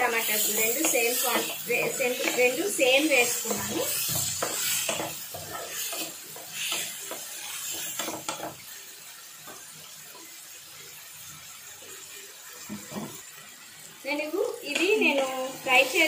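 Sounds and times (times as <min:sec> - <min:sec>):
onions and tomatoes sizzling: 0:00.0 - 0:16.0
wooden spatula scraping a pan: 0:00.3 - 0:08.6.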